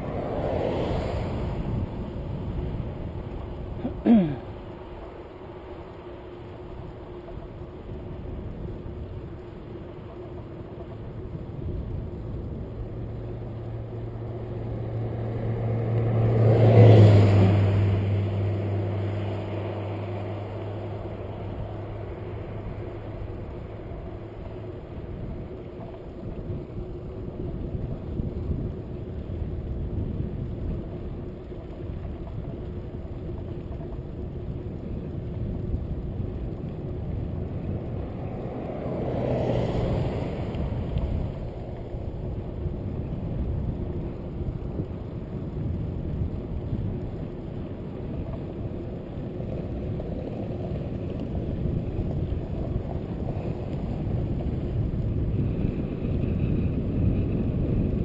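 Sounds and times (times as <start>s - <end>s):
vehicle passing: 0.0s - 3.6s, 11.7s - 28.4s, 36.3s - 58.0s
wind and road noise: 0.0s - 58.0s.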